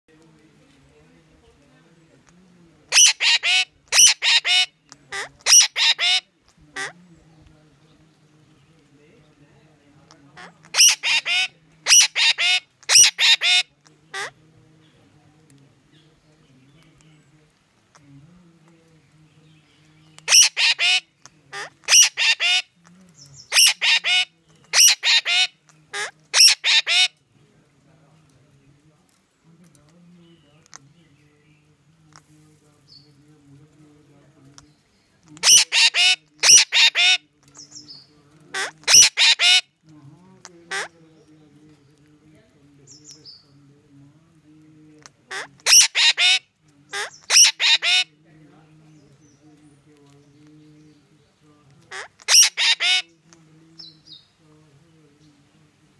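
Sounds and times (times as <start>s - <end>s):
faint low hum: 0.1s - 55.9s
parakeet screeching: 2.9s - 6.2s, 10.4s - 14.3s, 20.3s - 21.0s, 21.6s - 22.6s, 23.5s - 27.1s, 35.4s - 37.2s, 38.6s - 39.6s, 45.3s - 46.4s, 47.0s - 48.1s, 51.9s - 53.1s.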